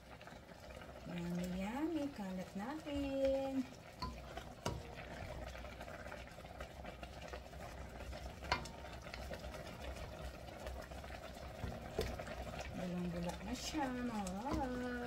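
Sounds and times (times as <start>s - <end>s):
broth bubbling in a wok: 0.0s - 15.0s
wooden spatula stirring: 1.1s - 15.0s.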